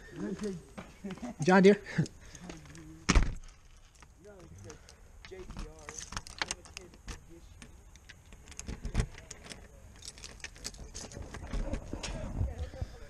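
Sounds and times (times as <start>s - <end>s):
loud thump: 3.1s - 3.4s
light handling clicks and rattles: 3.7s - 11.5s.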